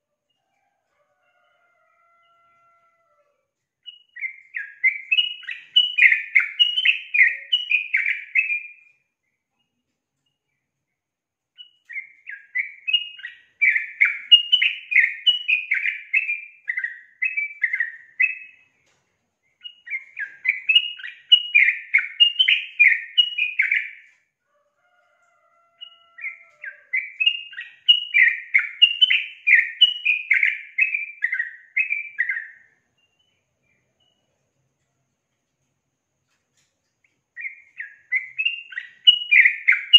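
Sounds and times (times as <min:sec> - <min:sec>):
bird rapid chirping song: 0:03.8 - 0:09.5, 0:11.6 - 0:18.7, 0:19.5 - 0:24.2, 0:25.8 - 0:34.3, 0:37.1 - 0:39.9.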